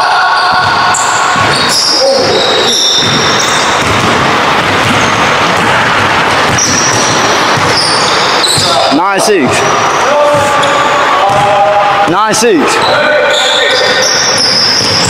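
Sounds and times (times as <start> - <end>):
sneakers squeaking: 0.1 - 9.0, 12.7 - 15.0
basketball bouncing: 0.4 - 8.8, 10.3 - 11.7, 14.4 - 15.0
steady rushing noise: 2.4 - 12.8.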